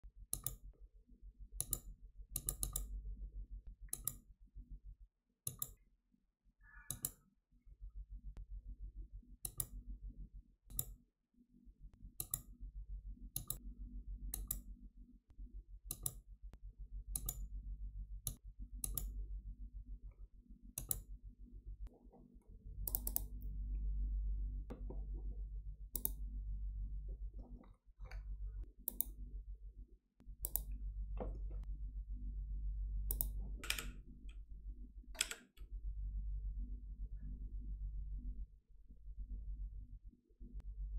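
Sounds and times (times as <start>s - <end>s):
computer mouse clicks: 0.3s - 0.7s, 1.6s - 3.0s, 3.8s - 4.3s, 5.4s - 5.8s, 6.7s - 7.3s, 9.4s - 9.8s, 10.7s - 11.0s, 12.0s - 12.6s, 13.3s - 13.6s, 14.3s - 14.7s, 15.9s - 16.2s, 17.1s - 17.5s, 18.2s - 19.2s, 20.8s - 21.1s, 22.8s - 23.5s, 25.9s - 26.3s, 27.4s - 29.3s, 30.2s - 31.4s, 33.1s - 34.4s, 35.1s - 35.7s
steady low hum: 11.6s - 40.9s.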